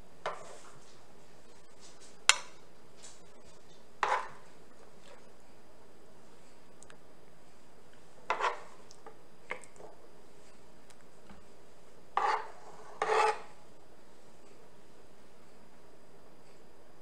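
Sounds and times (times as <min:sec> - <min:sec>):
metal spoon scraping cookware: 0:12.2 - 0:13.5.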